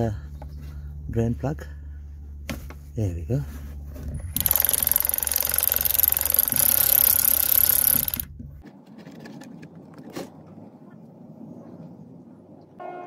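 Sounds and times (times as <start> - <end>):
power ratchet buzzing: 4.2 - 8.3
faint handling clicks: 4.4 - 8.3.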